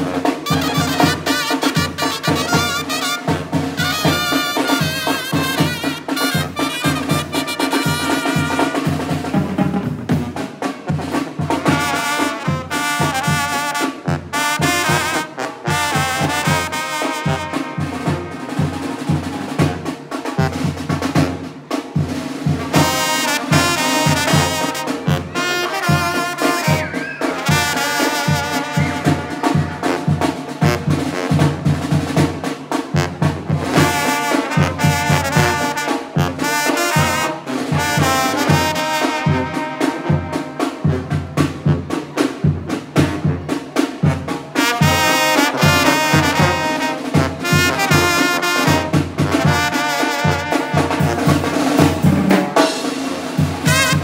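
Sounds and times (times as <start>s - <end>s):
snare drum: 0.0s - 54.0s
trumpets and trombones melody: 0.0s - 54.0s
tuba: 0.0s - 54.0s
steady bass drum beat: 53.4s - 54.0s.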